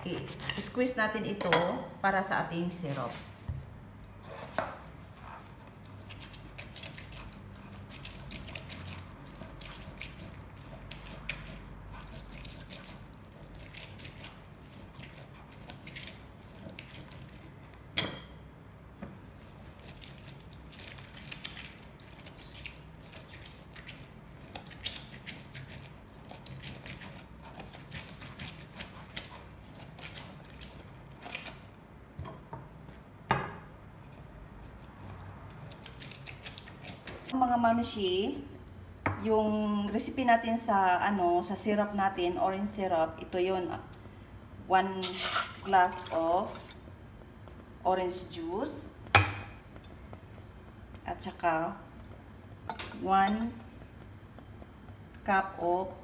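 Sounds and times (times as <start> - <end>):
low steady hum: 0.0 - 56.0
orange squishing on citrus reamer: 5.0 - 17.9, 19.2 - 31.8.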